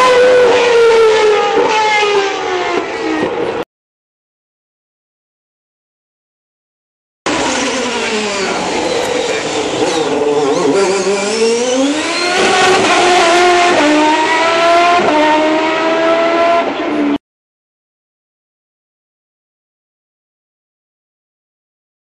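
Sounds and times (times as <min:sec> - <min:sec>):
racing car engine: 0:00.0 - 0:03.6, 0:07.3 - 0:17.2.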